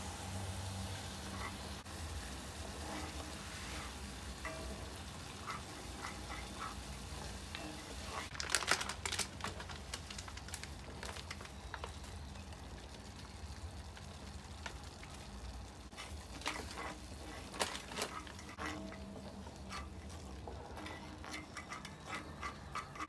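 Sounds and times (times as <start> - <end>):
sauce crackling and bubbling: 0.1 - 23.0
wooden spoon scraping a pan: 1.0 - 8.4, 15.8 - 23.0.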